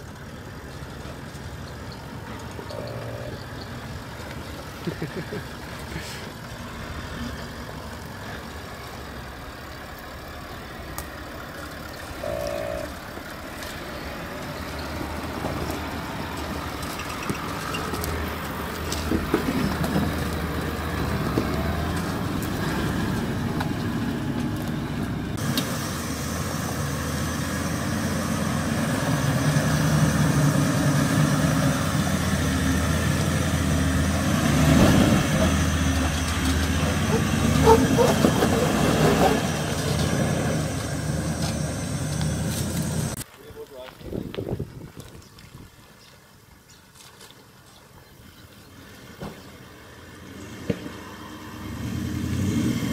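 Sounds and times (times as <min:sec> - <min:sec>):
diesel engine running at low revs: 0:00.0 - 0:43.2.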